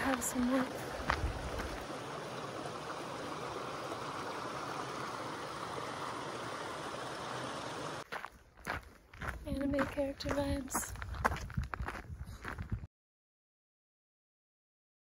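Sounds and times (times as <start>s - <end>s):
creek water rushing: 0.0s - 8.0s.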